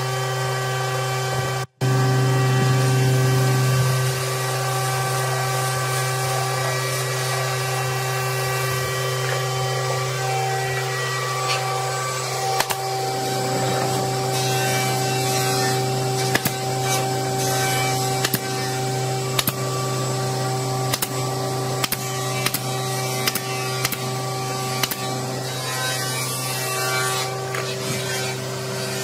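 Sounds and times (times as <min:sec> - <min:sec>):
steady mechanical hum: 0:00.0 - 0:29.0
pneumatic nailer firing: 0:10.7 - 0:15.0, 0:15.7 - 0:26.5.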